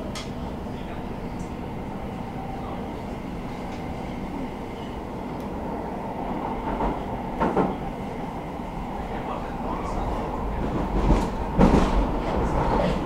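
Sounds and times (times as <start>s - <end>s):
train wheels rumbling on rails: 0.0s - 13.0s
loud train clunks: 2.6s - 13.0s.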